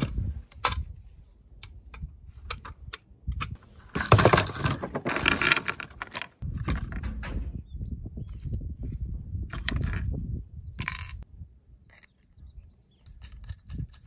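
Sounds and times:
metallic clatter: 4.0s - 7.6s
metal parts clinking on wood: 10.8s - 11.2s.

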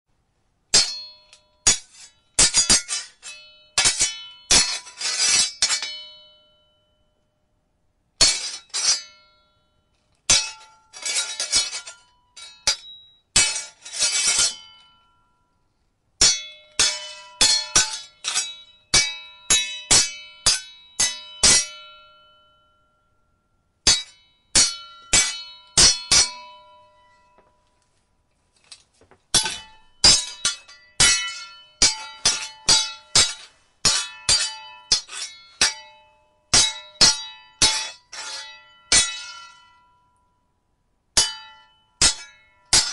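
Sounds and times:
sword blades clashing: 0.7s - 6.3s, 8.2s - 9.3s, 10.3s - 15.0s, 16.2s - 22.3s, 23.9s - 27.3s, 29.3s - 39.8s, 41.2s - 42.9s.

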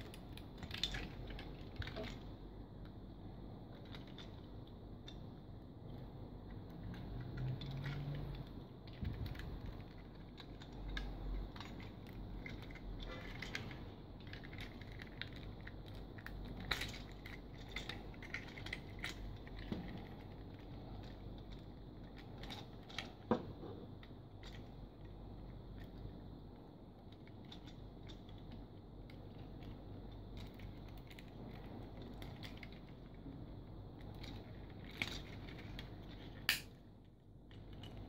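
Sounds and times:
plastic toy parts clicking: 36.3s - 36.7s.

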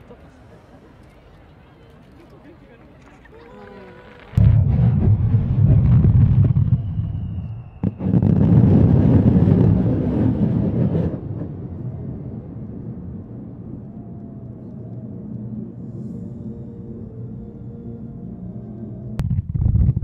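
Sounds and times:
fireworks rumble with crackle: 2.3s - 15.6s, 19.2s - 20.0s
sharp firework bang: 4.4s - 11.2s.

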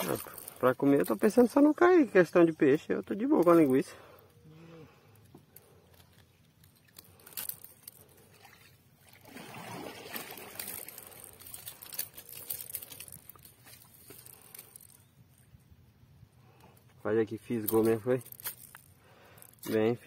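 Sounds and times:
river water splashing and sloshing: 5.9s - 15.0s.

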